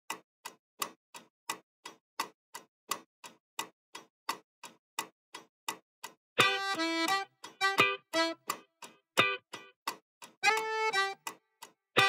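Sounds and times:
clock-like ticking: 0.1s - 12.0s.

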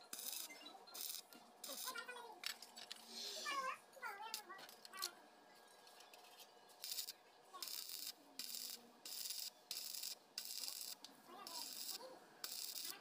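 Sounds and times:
arc welder crackling and hissing: 0.0s - 2.0s, 6.8s - 13.0s.

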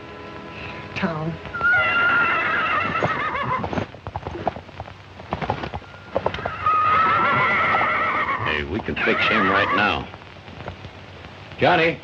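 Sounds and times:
horse whinnying: 1.5s - 3.9s, 6.1s - 10.1s
hoof thuds and stamps: 3.0s - 6.6s.

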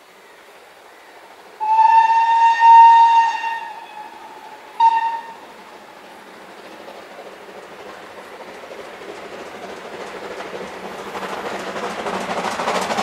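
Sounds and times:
steam locomotive whistle blasts: 1.6s - 5.5s.

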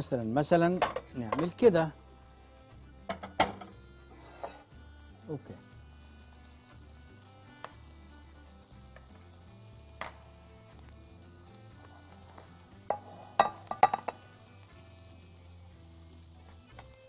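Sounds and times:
meat sizzling in a pan: 0.0s - 17.0s
kitchenware clinking on dishes: 0.7s - 1.7s, 3.0s - 4.6s, 12.9s - 14.2s.

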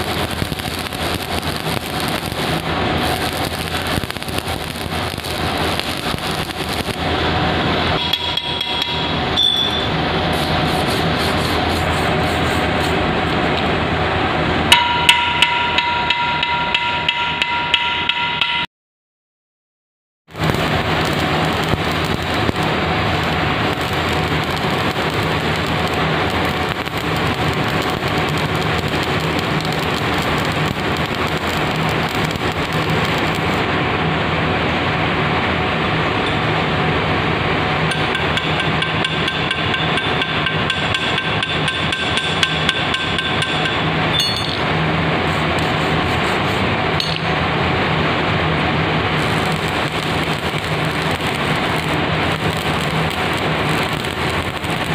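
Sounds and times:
arc welding crackle and sizzle: 0.0s - 8.5s, 10.2s - 13.7s, 20.3s - 54.9s.

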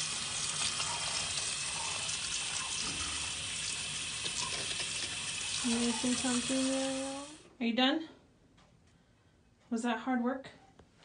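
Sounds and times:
water spraying from hose: 0.0s - 7.4s.

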